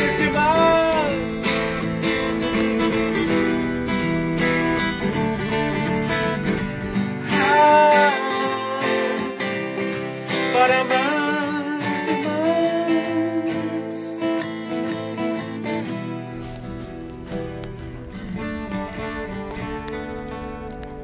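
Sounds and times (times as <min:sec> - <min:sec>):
man singing: 0:00.0 - 0:01.9, 0:07.2 - 0:14.4
acoustic guitar strumming: 0:00.0 - 0:21.0.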